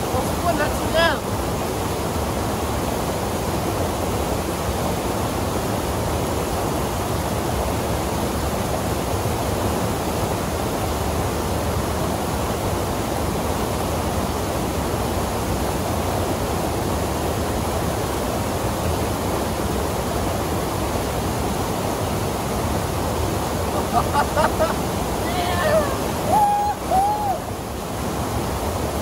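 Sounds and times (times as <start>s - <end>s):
waterfall and rapids rushing: 0.0s - 29.0s.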